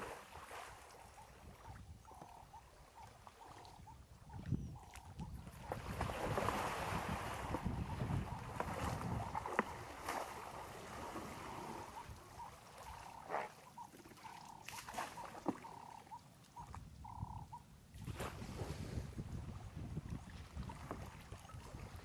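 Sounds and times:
wind rumbling on microphone: 0.0 - 12.6, 16.6 - 22.0
faint water splashing: 0.0 - 17.2.

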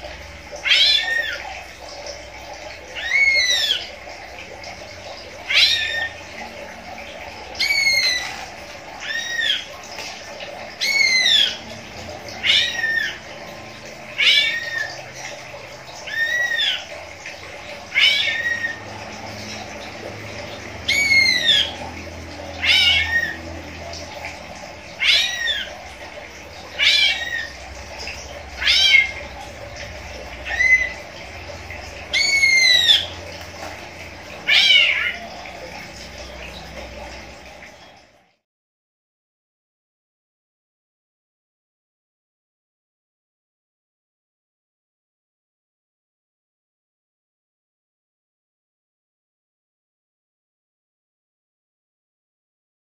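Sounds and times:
caged bird calling: 0.0 - 38.0.

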